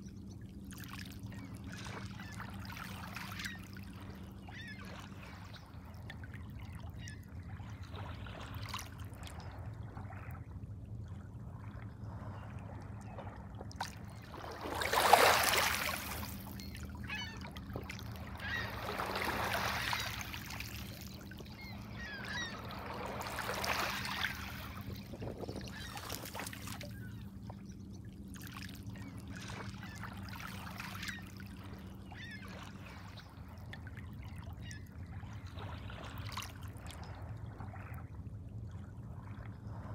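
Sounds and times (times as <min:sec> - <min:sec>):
waves lapping on pebble shore: 0:14.6 - 0:16.4.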